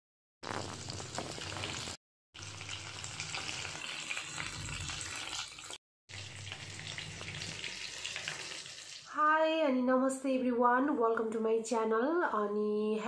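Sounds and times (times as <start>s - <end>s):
chicken deep-frying in oil: 0.4s - 9.2s.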